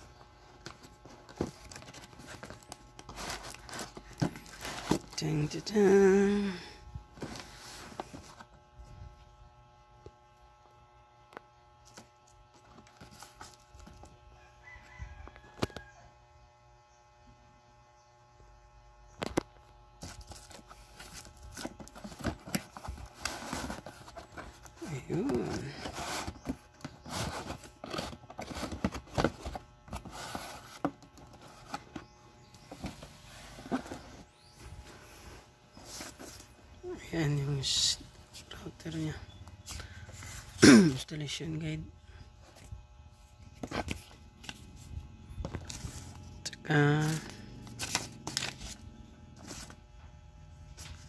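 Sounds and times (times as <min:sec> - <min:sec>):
steady low hum: 0:00.0 - 0:14.6, 0:16.1 - 0:51.0
paper rustling: 0:20.0 - 0:32.1, 0:45.4 - 0:48.8, 0:49.4 - 0:49.8.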